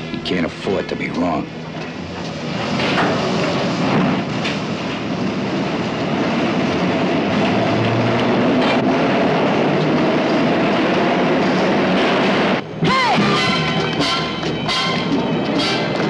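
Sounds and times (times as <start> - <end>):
subway train rumble and rattle: 0.0 - 16.0
train wheels clacking: 12.9 - 16.0.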